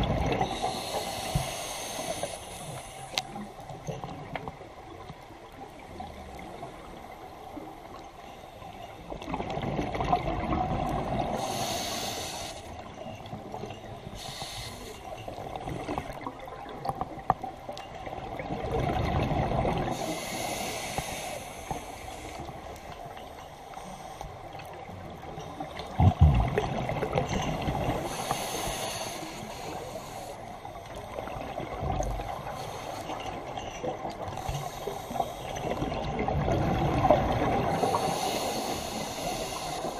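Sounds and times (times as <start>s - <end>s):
regulator hiss on inhale: 0.4s - 3.6s, 11.3s - 12.9s, 14.0s - 16.2s, 19.9s - 24.7s, 27.8s - 31.3s, 32.2s - 33.6s, 34.2s - 35.8s, 37.7s - 39.9s
exhaled bubbles rushing: 26.0s - 27.8s.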